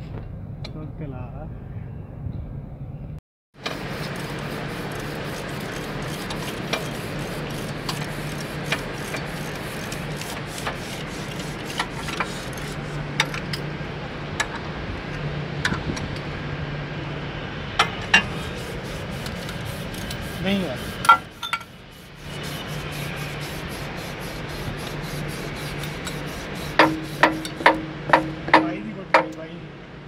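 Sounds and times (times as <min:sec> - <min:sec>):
low background hum: 0:00.2 - 0:30.0
metal tools clinking: 0:21.1 - 0:21.7.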